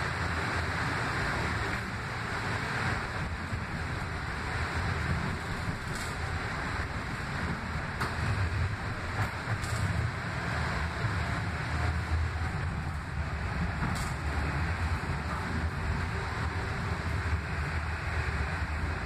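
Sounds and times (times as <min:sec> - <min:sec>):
train rumbling on rails: 0:00.0 - 0:19.0.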